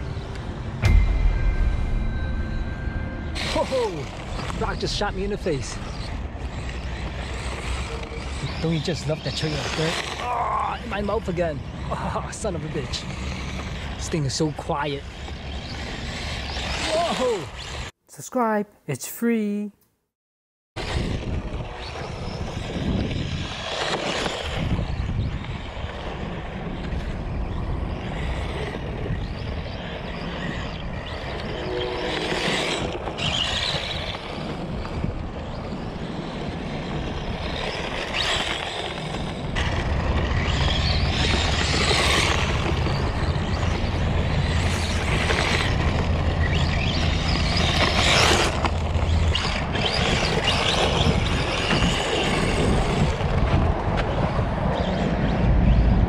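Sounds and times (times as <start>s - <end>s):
rc car driving on dirt: 0.0s - 18.0s, 20.8s - 56.0s
tyres on gravel: 3.3s - 17.9s, 20.8s - 54.9s.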